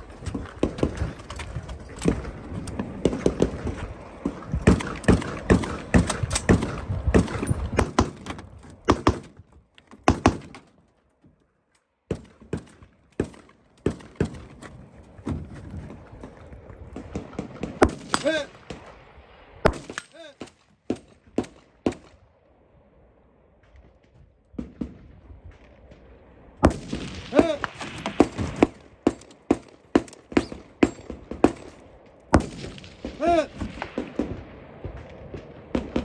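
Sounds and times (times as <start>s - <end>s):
gunshots: 2.0s - 9.4s, 10.0s - 10.6s, 12.1s - 14.6s, 16.8s - 18.9s, 19.6s - 22.2s, 26.6s - 36.0s.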